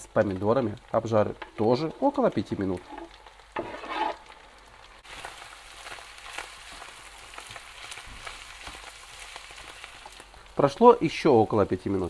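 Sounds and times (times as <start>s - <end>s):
food sizzling in a frying pan: 0.0s - 12.0s
spatula scraping a pan: 2.7s - 4.4s.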